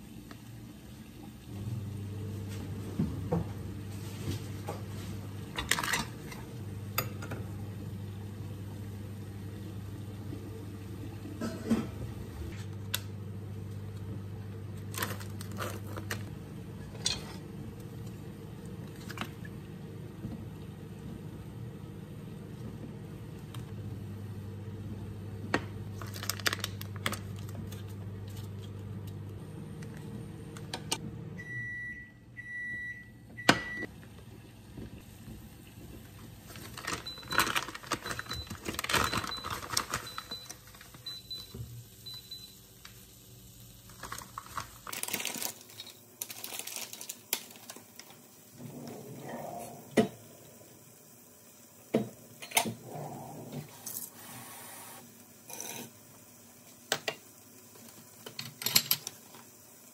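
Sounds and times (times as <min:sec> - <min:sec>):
microwave oven humming: 0:00.0 - 0:59.9
kitchen clatter: 0:05.5 - 0:07.5, 0:11.4 - 0:12.1, 0:16.8 - 0:17.5, 0:58.2 - 0:59.3
plastic packaging crinkling: 0:14.8 - 0:16.3, 0:25.9 - 0:28.6, 0:36.5 - 0:41.0, 0:43.9 - 0:48.2.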